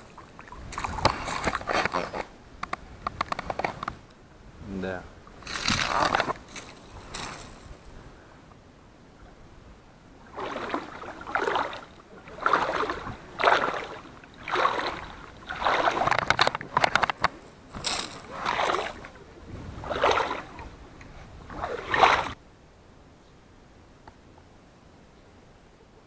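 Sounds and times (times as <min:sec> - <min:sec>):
rhythmic splashing in water: 0:10.3 - 0:19.2.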